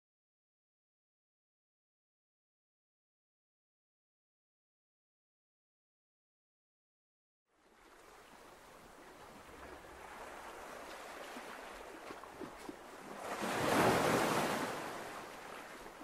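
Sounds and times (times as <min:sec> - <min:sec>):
ocean surf washing onto beach: 0:08.9 - 0:16.0
wave breaking: 0:10.0 - 0:16.0.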